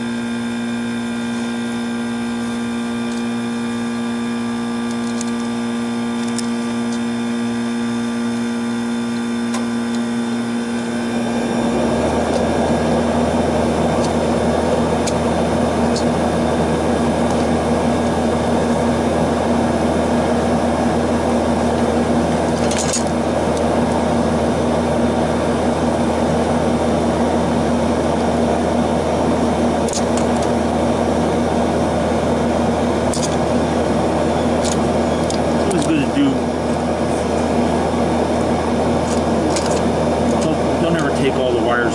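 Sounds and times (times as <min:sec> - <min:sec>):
air conditioner humming: 0:00.0 - 0:41.9
fan rushing: 0:00.0 - 0:41.9.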